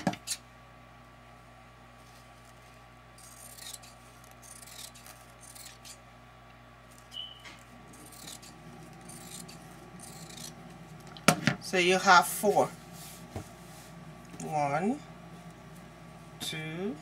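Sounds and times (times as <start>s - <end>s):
scissors snipping fabric: 3.2s - 6.0s, 7.9s - 10.6s
high squeak: 7.1s - 10.6s.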